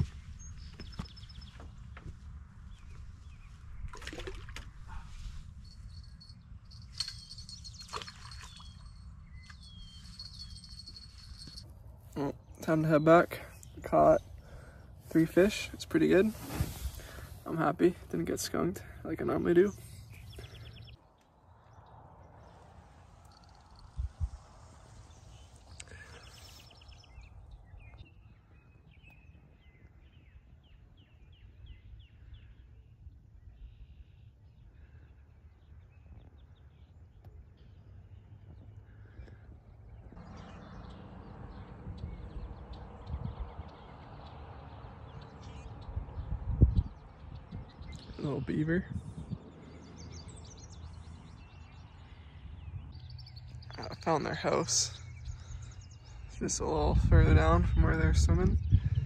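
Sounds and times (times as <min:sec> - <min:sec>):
wind rumble on microphone: 0:00.0 - 0:11.8, 0:21.6 - 0:34.6, 0:35.4 - 0:53.9, 0:54.9 - 0:59.0
birds trilling and chirping: 0:00.0 - 0:59.0
songbird singing: 0:00.0 - 0:59.0
water splashing: 0:03.8 - 0:04.9, 0:07.3 - 0:09.0.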